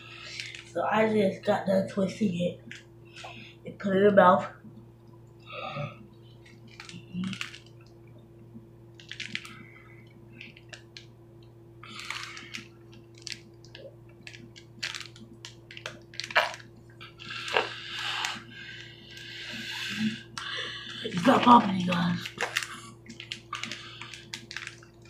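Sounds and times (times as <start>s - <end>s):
plastic bag crinkling: 0.2s - 0.8s, 6.4s - 7.8s, 8.9s - 9.7s, 11.9s - 25.0s.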